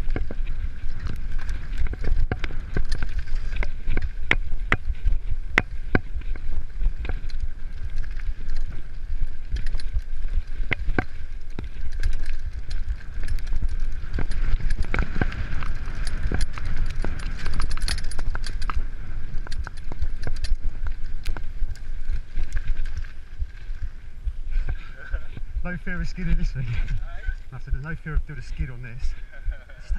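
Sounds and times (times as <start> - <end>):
bike rattles and knocks: 0.0 - 25.7
wind and tyre rumble: 0.0 - 29.9.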